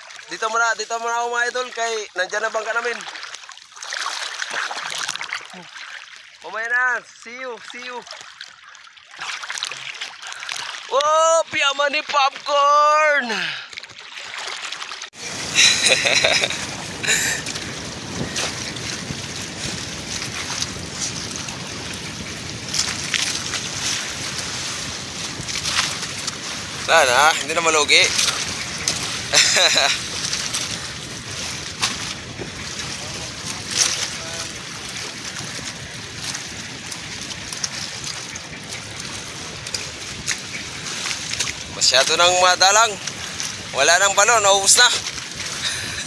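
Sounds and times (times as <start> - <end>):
sea noise: 0.0 - 46.0
water splashes: 0.0 - 46.0
wind on microphone: 15.2 - 44.2.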